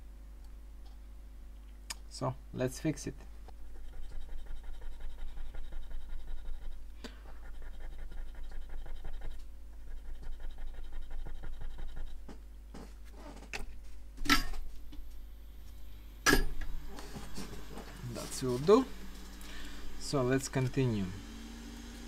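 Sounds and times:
tool scraping: 0:16.4 - 0:21.0.

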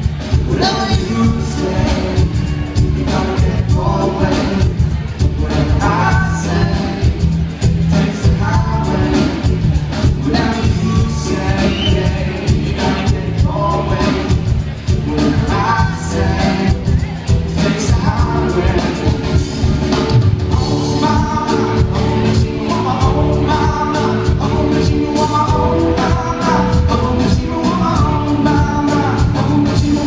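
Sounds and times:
live rock band: 0:00.0 - 0:30.0
person singing: 0:00.0 - 0:30.0.

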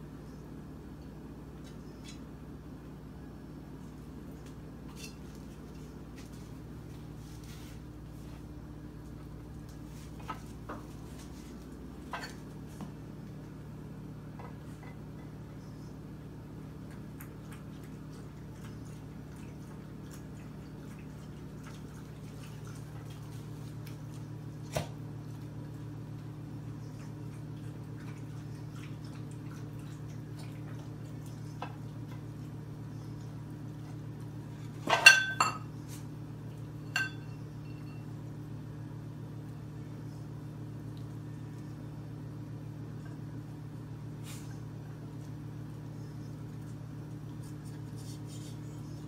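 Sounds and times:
steady low hum: 0:00.0 - 0:49.0
pet food dishes clinking: 0:34.8 - 0:35.7, 0:36.9 - 0:38.1.

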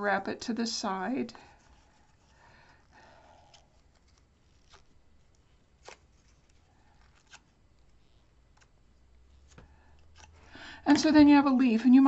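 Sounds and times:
paper rustling and clicking: 0:01.7 - 0:08.7.

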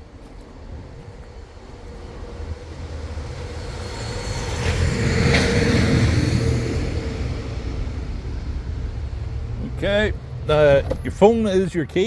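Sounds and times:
passing vehicle rumble and tyre hiss: 0:00.0 - 0:12.0.

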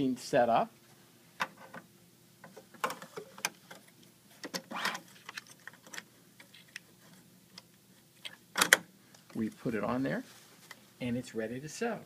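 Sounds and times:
fabric rustling: 0:09.4 - 0:11.0.

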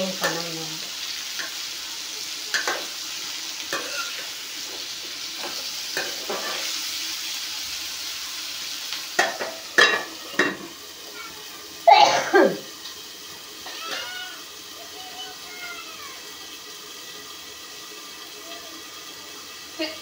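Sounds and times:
potatoes sizzling in a pan: 0:00.0 - 0:20.0
metal lid clanking on pan: 0:02.5 - 0:02.9, 0:03.7 - 0:04.3, 0:05.4 - 0:06.7, 0:09.2 - 0:10.8
metal spoon knocking on pan: 0:09.2 - 0:10.7.

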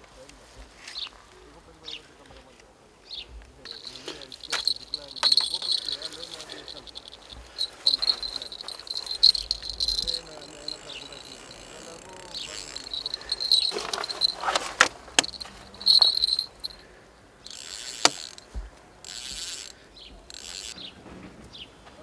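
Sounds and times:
insects chirping: 0:03.6 - 0:20.8
sharp clicks: 0:03.7 - 0:16.8, 0:17.4 - 0:20.8.

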